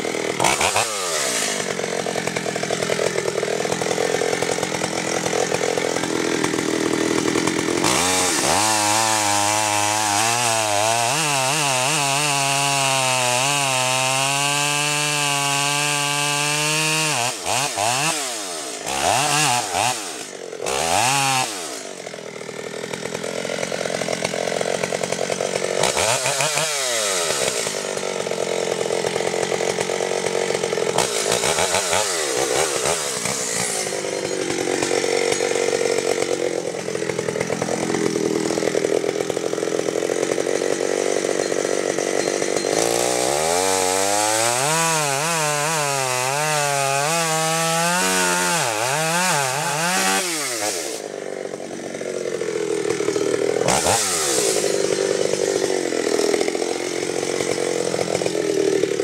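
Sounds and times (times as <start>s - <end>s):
chainsaw cutting tree trunk: 0.0s - 59.0s.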